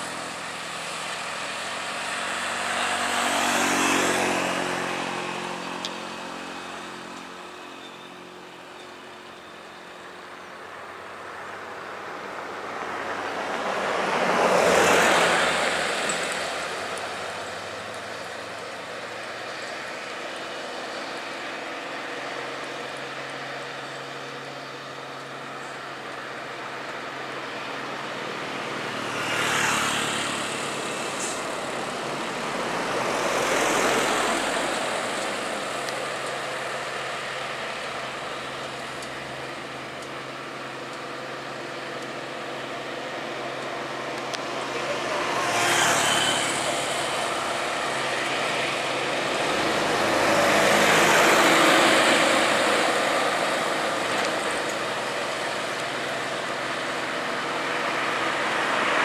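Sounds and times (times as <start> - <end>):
trucks engine hum uphill: 0.0 - 59.0
vehicles passing: 0.0 - 59.0.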